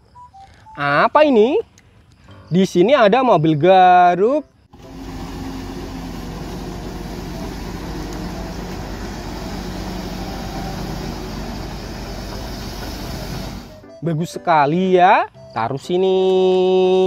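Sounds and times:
excavator diesel engine running: 4.7s - 13.9s.

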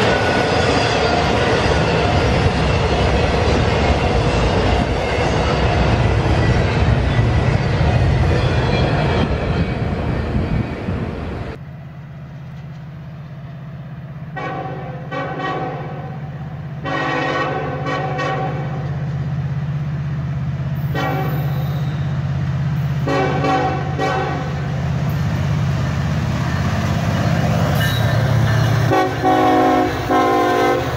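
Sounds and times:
diesel locomotive engine drone: 0.0s - 30.9s
freight train rolling past: 0.0s - 30.9s
train horn blasts: 14.3s - 16.2s, 16.8s - 18.9s, 20.8s - 22.0s, 23.0s - 24.6s, 27.8s - 30.9s.

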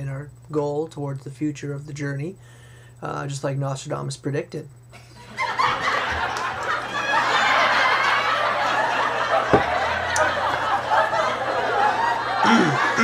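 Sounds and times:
people laughing: 5.0s - 13.0s.

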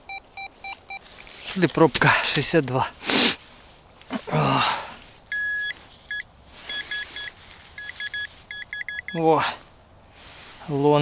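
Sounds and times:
metal detector beeping: 0.0s - 1.1s, 5.3s - 9.2s.

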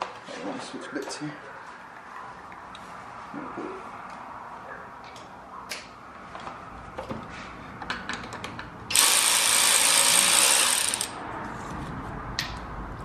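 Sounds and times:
electric ratchet spinning: 8.9s - 11.2s.

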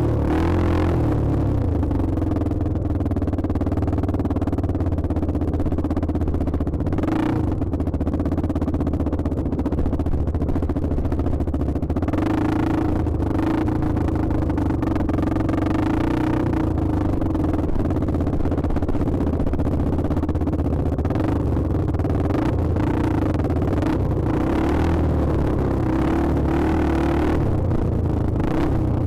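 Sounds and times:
dirt bike engine revving: 0.0s - 1.0s.

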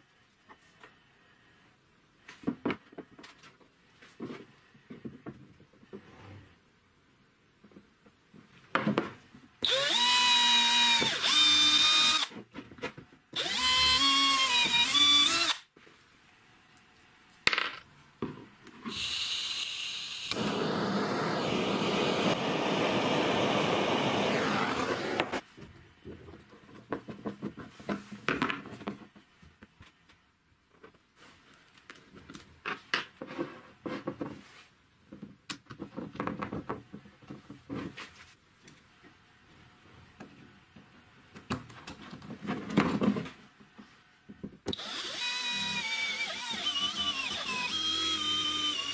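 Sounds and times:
power drill running: 9.6s - 12.3s, 13.4s - 15.6s, 18.9s - 25.4s, 44.7s - 48.9s
gas torch hissing: 20.2s - 25.4s.

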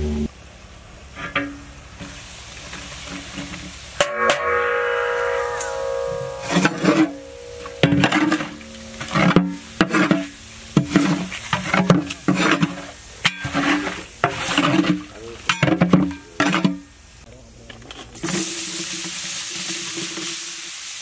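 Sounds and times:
paste sizzling in hot oil: 1.5s - 4.0s, 8.7s - 17.3s, 18.2s - 21.0s
metal spatula scraping a pot: 3.1s - 16.8s.

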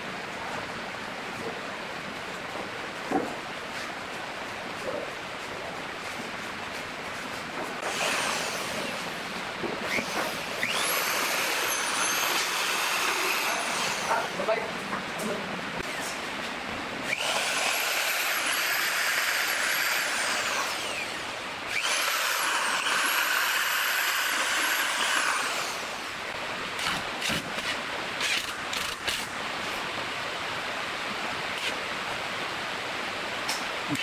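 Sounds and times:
electric drill whining: 7.8s - 9.2s, 9.8s - 14.3s, 17.1s - 26.1s
cordless drill driving screws: 9.8s - 14.3s, 17.1s - 26.1s, 26.8s - 29.3s.

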